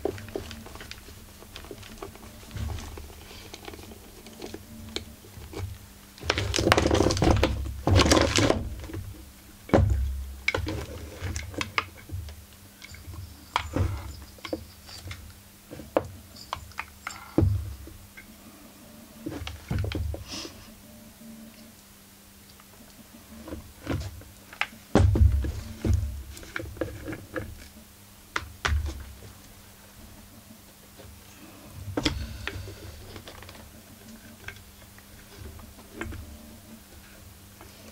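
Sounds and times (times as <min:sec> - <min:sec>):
metal parts clicking and clinking: 0:12.8 - 0:15.4, 0:16.1 - 0:18.3.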